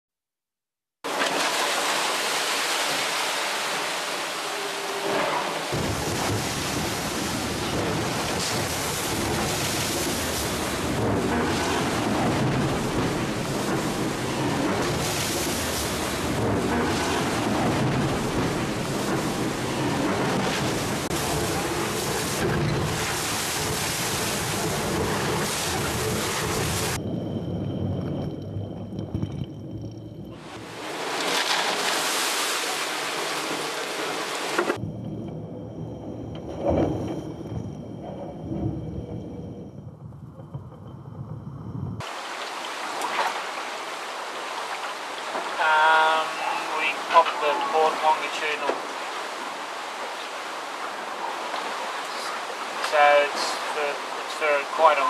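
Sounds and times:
breaking sea waves: 0:01.0 - 0:55.0
seawater rushing across deck: 0:01.1 - 0:39.6, 0:42.0 - 0:55.0
strong wind: 0:03.6 - 0:47.2
wind buffeting microphone: 0:34.8 - 0:42.0.

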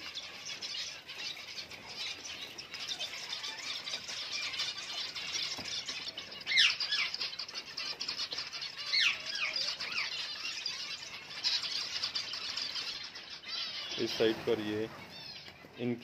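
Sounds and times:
finches twittering: 0:00.0 - 0:16.0
loud sweeping bird calls: 0:00.0 - 0:16.0.

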